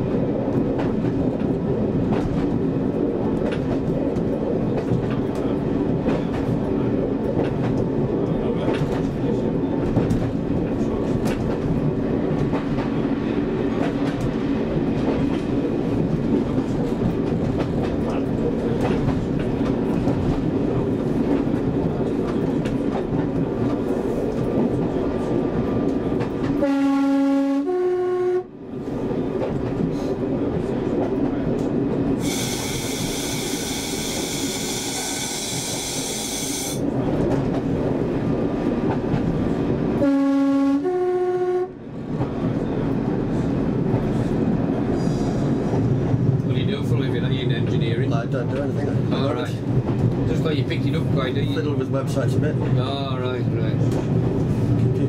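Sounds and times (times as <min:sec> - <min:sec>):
two-tone train horn: 0:26.6 - 0:28.6, 0:40.0 - 0:41.8
train diesel engine running: 0:28.6 - 0:49.7.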